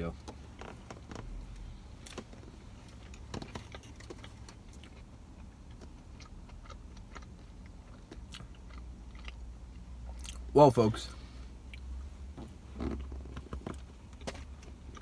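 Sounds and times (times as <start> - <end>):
low steady hum: 0.0 - 15.0
person chewing: 2.9 - 10.5, 11.6 - 12.0.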